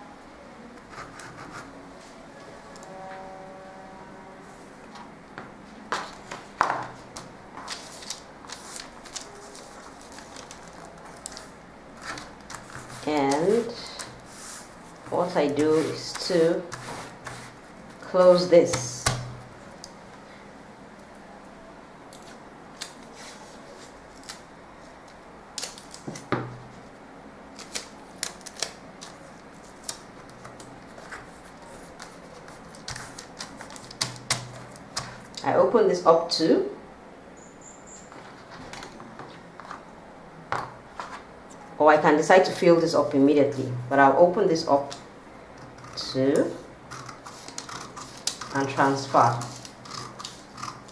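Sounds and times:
paper rustling: 0:05.9 - 0:17.6, 0:27.6 - 0:35.4, 0:46.9 - 0:50.9.

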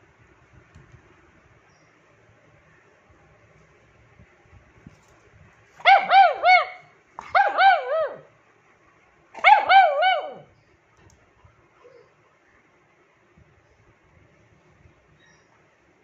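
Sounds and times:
dog yelping barks: 0:05.8 - 0:08.3, 0:09.4 - 0:10.5.

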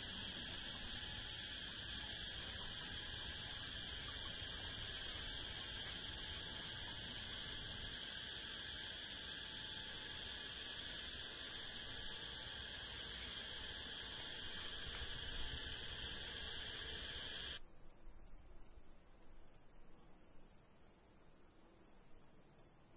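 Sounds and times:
thin high steady tone: 0:00.0 - 0:17.6
crickets chorus: 0:00.0 - 0:22.9
rapid insect chirps: 0:00.0 - 0:22.9.

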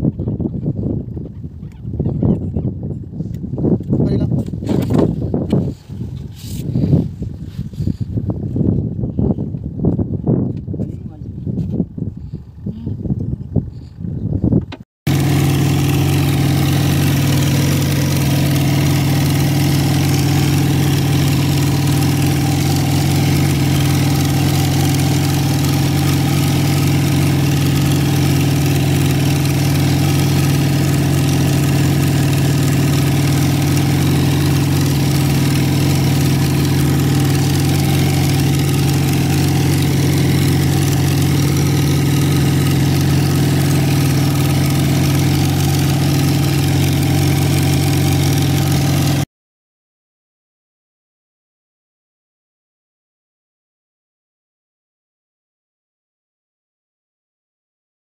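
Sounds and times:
boat engine running steadily: 0:14.7 - 0:49.2.

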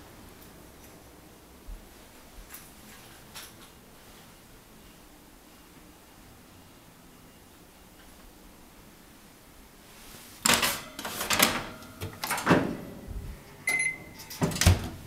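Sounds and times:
oven door clunking: 0:14.0 - 0:15.0.

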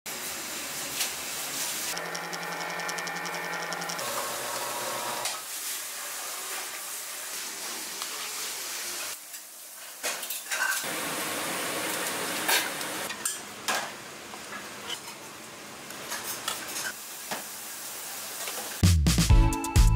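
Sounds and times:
water boiling hard in pot: 0:10.9 - 0:13.1.

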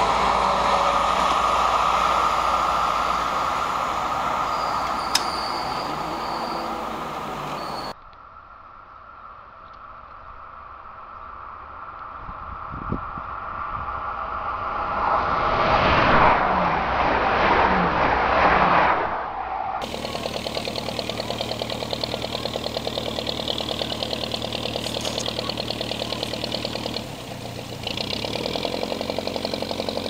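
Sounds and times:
train passing with rushing rumble: 0:00.0 - 0:08.0
steady mechanical pulsing: 0:19.8 - 0:28.1.

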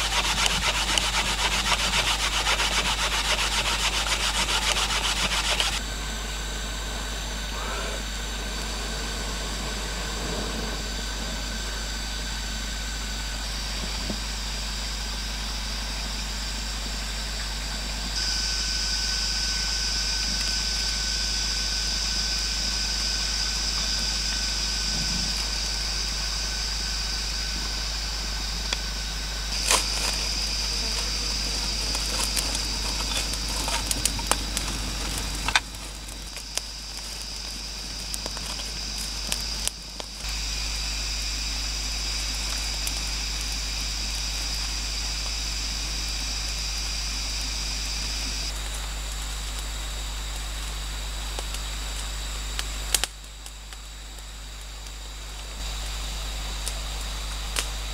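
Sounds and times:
fire crackling and popping: 0:00.0 - 0:06.4, 0:22.6 - 0:57.9
high-pitched hum: 0:00.0 - 0:48.6.

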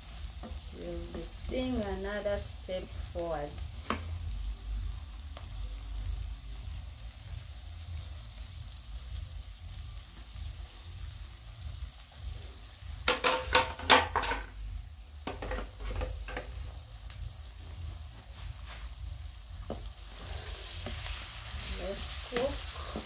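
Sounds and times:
vegetables sizzling in a pan: 0:00.0 - 0:23.0
spatula scraping and knocking a pan: 0:13.0 - 0:14.5, 0:15.2 - 0:16.6.

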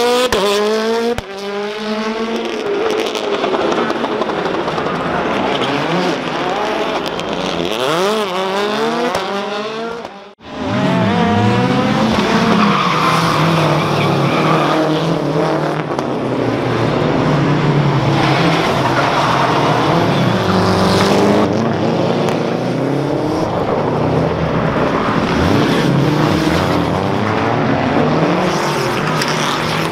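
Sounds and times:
rally car engines revving: 0:00.0 - 0:29.9.

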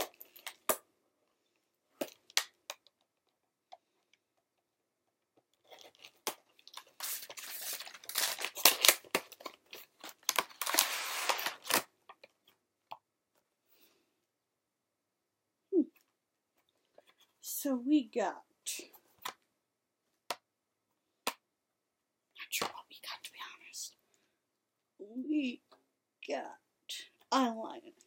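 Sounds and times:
packaging crinkling and tearing: 0:05.6 - 0:11.9.

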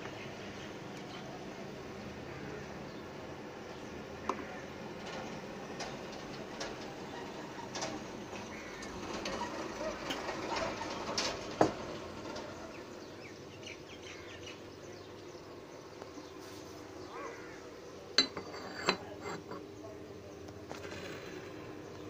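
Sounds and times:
ceramic cup clinking on saucer: 0:18.2 - 0:19.6.

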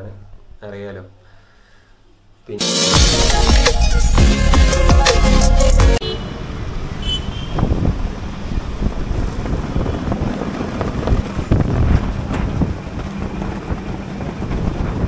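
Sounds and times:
city street traffic: 0:04.8 - 0:15.0
wind rumbling on microphone: 0:06.6 - 0:15.0.

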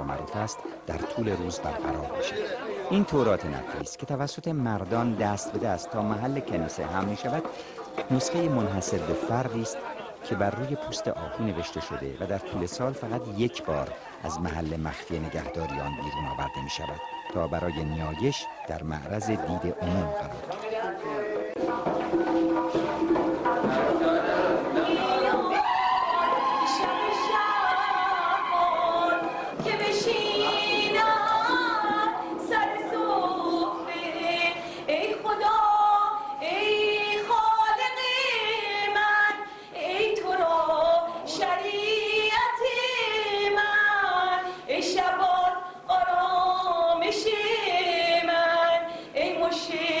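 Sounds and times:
women chanting unaccompanied: 0:23.6 - 0:50.0.

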